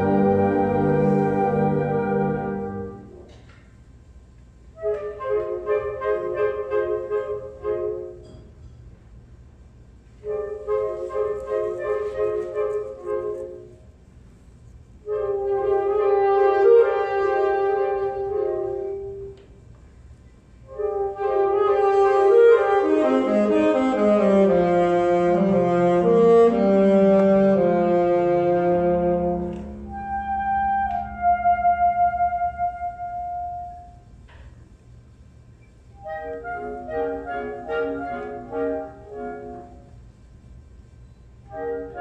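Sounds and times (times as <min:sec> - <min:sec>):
alto saxophone solo: 0:00.0 - 0:03.4, 0:15.0 - 0:19.6, 0:20.6 - 0:34.2, 0:36.0 - 0:40.1, 0:41.4 - 0:42.0
wind band playing: 0:00.0 - 0:03.4, 0:04.6 - 0:08.3, 0:09.8 - 0:19.7, 0:20.6 - 0:34.2, 0:35.4 - 0:40.5, 0:41.4 - 0:42.0.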